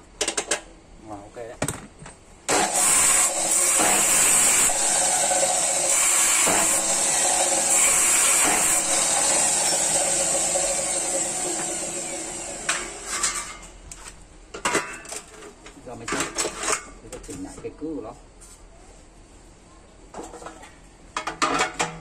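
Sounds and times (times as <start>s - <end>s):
cut-off saw grinding through steel: 2.5s - 13.6s.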